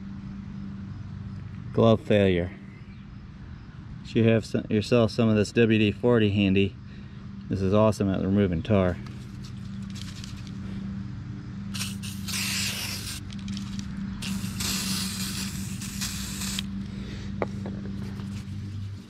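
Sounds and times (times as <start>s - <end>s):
low hum: 8.5s - 19.0s
aerosol can spraying: 11.7s - 16.9s.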